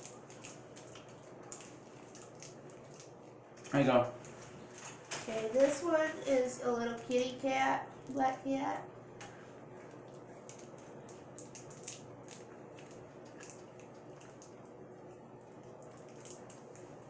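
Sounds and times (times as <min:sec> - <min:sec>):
candy wrapper crinkling: 0:00.0 - 0:06.1, 0:09.8 - 0:14.7, 0:15.4 - 0:17.0.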